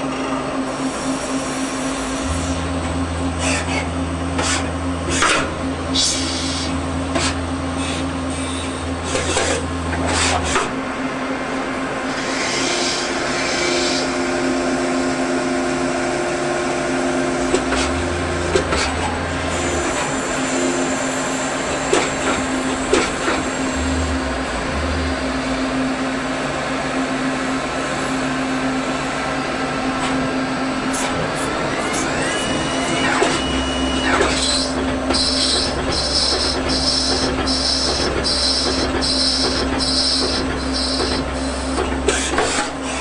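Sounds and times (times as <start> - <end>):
deep machine drone: 0.0 - 43.0
lathe motor hum: 0.5 - 33.4.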